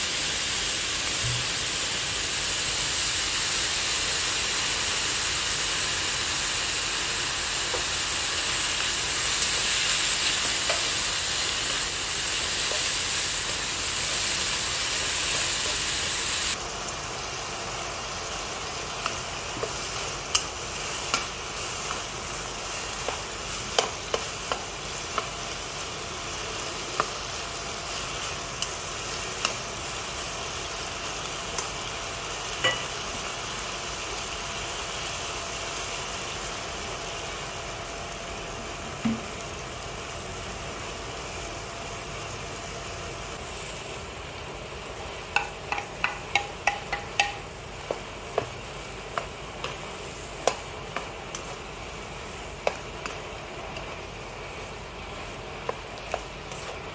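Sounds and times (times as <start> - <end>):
food sizzling in a wok: 0.0 - 56.9
spatula tapping: 22.9 - 25.4, 45.3 - 51.6, 52.6 - 53.9
spatula clicking against pan: 45.3 - 48.5.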